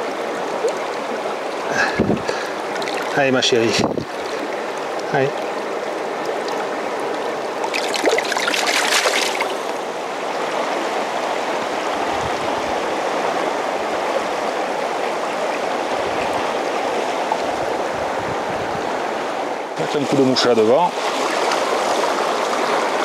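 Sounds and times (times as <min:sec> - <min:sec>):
splashing in shallow water: 0:00.0 - 0:09.8
river current rushing: 0:00.0 - 0:23.0.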